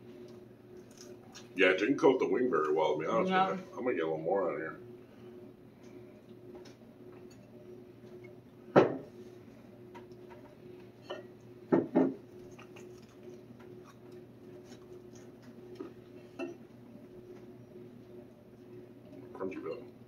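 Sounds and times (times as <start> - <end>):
faint steady hum: 0.0 - 20.0
bottle knocking on plates: 8.8 - 9.1, 11.7 - 12.2.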